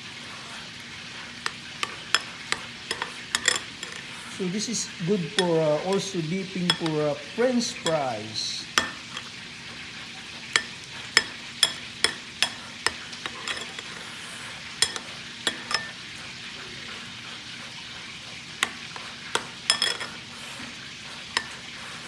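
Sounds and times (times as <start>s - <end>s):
frying sizzle: 0.0s - 22.0s
metal spoon scraping ceramic bowl: 1.4s - 4.3s, 5.2s - 7.1s, 8.8s - 9.3s, 10.6s - 14.0s, 14.8s - 16.0s, 18.6s - 20.2s.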